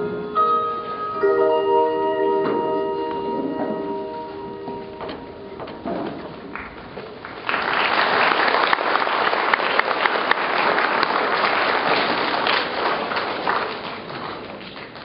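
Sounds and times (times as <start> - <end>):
audience clapping: 6.5 - 15.0.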